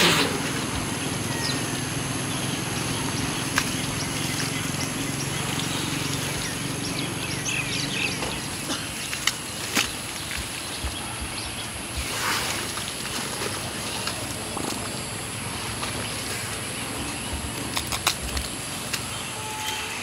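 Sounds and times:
birds chirping: 0:00.0 - 0:12.1
low steady hum: 0:00.0 - 0:20.0.

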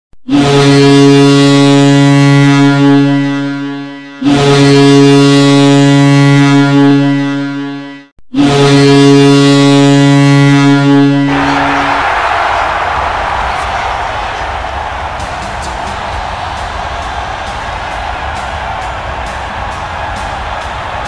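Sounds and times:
hockey goal horn blasts: 0:00.2 - 0:16.4.

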